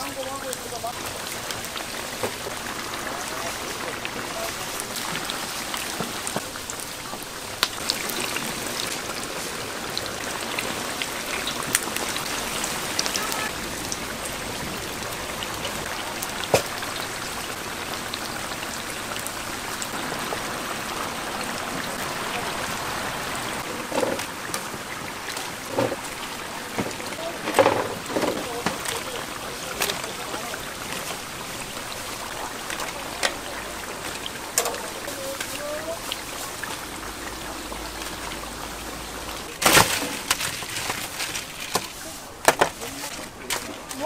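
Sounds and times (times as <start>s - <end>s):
oil sizzling in a deep fryer: 0.0s - 44.0s
pops and crackles: 0.5s - 9.2s, 16.2s - 17.1s.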